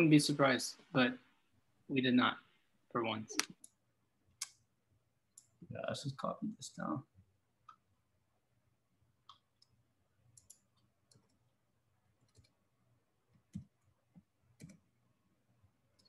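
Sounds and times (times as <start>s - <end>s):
keyboard and mouse clicks: 9.2s - 11.4s, 12.2s - 12.6s, 13.4s - 14.9s.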